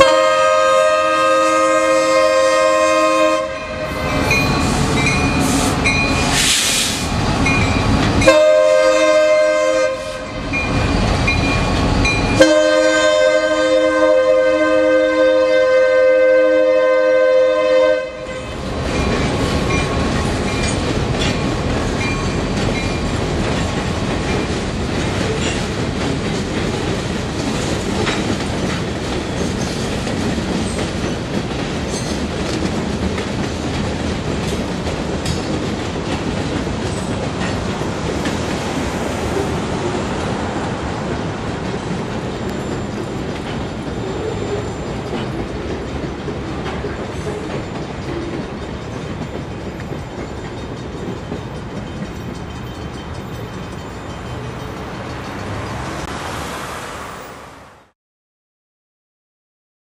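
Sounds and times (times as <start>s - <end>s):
locomotive air horn: 0.0s - 4.8s, 5.4s - 7.0s, 8.2s - 10.5s, 12.4s - 18.7s
wheels clicking over rail joints: 18.6s - 56.1s.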